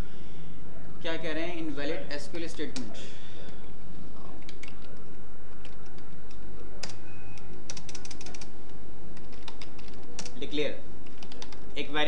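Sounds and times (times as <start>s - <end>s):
low steady hum: 0.0s - 12.0s
keyboard typing: 4.3s - 10.4s, 11.0s - 11.8s.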